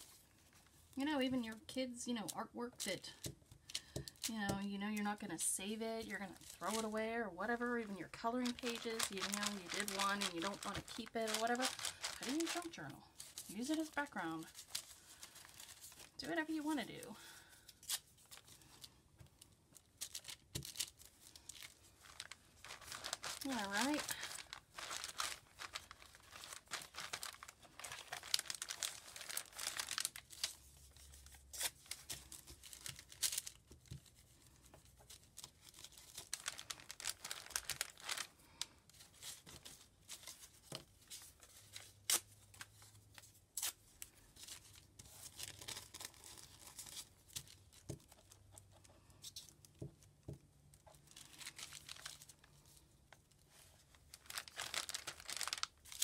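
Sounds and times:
paper tearing and rustling: 8.3s - 16.1s, 20.0s - 33.6s, 35.2s - 38.3s, 54.1s - 56.0s.

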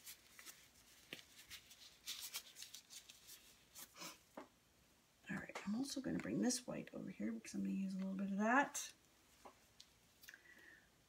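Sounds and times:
rustling and crinkling: 0.0s - 4.5s.

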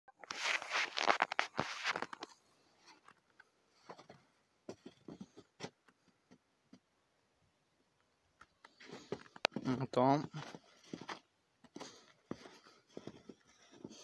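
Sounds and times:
footsteps in snow: 0.2s - 2.2s, 8.8s - 14.0s
scratchy scraping: 0.2s - 3.1s, 11.8s - 14.0s.

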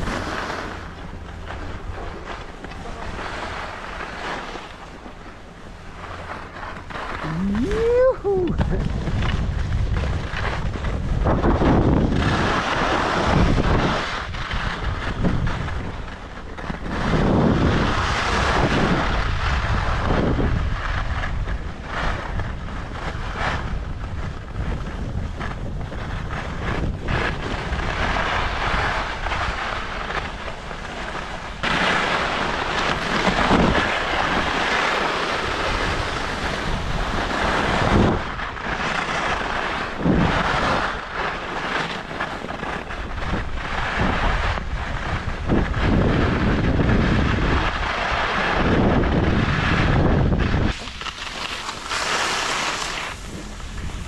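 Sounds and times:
skis scraping on icy snow: 0.0s - 54.0s
wind rushing over microphone: 0.0s - 54.0s.

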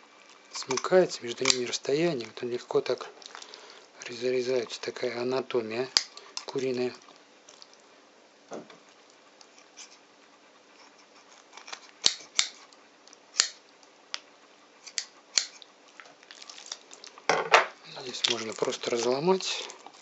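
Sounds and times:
scissors snipping chicken bones: 0.7s - 1.7s, 11.7s - 12.6s, 13.4s - 13.6s, 14.9s - 15.6s.

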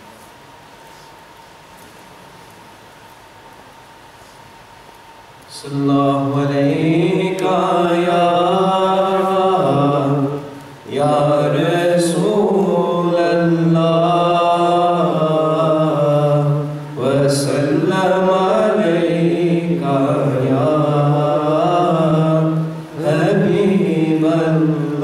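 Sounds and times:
man chanting into a microphone: 5.5s - 25.0s.

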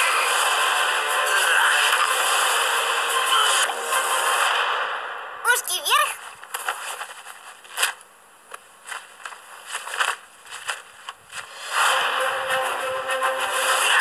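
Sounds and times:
cloth costume rustling: 6.2s - 11.7s.

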